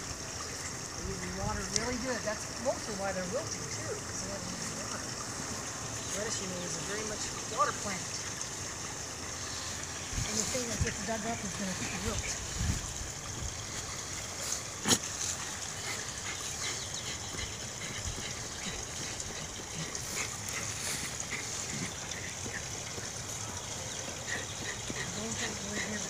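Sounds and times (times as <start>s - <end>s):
puppy digging in soil: 9.4s - 26.0s.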